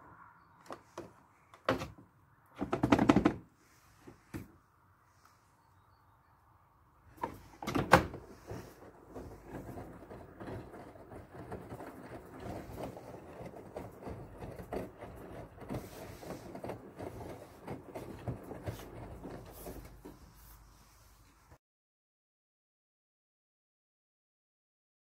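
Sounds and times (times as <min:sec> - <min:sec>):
small irregular knocks: 0:00.6 - 0:03.5, 0:07.2 - 0:20.4
detergent drawer clacking shut: 0:07.2 - 0:08.2.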